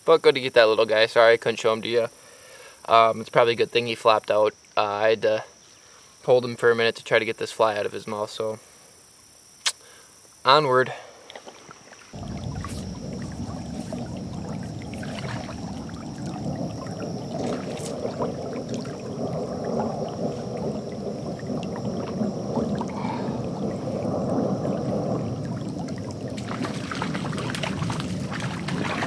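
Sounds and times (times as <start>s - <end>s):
water sloshing around legs: 11.3s - 24.0s, 24.6s - 29.0s
faint high whine: 12.0s - 29.0s.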